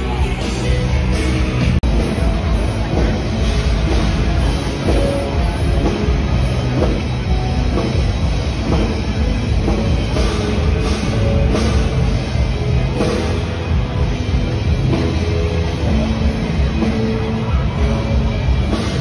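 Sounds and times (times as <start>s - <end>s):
driving drum beat: 0.0s - 19.0s
loud rock music: 0.0s - 19.0s.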